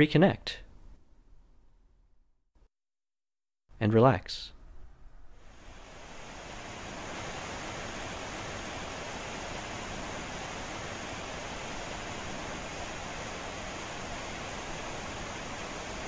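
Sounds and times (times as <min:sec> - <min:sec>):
waterfall roaring: 0:05.5 - 0:16.0.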